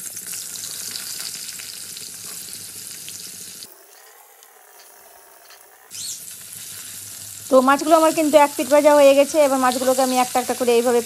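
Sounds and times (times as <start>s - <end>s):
fish sizzling in hot oil: 0.0s - 3.7s, 5.9s - 11.0s.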